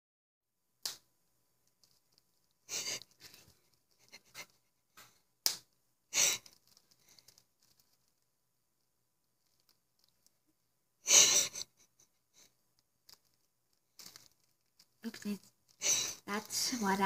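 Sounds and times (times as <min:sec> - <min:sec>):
breathy sniffs: 0:02.7 - 0:04.5, 0:15.8 - 0:16.2.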